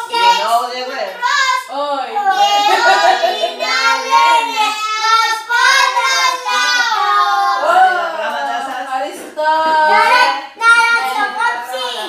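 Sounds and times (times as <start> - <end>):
children singing: 1.1 - 8.4.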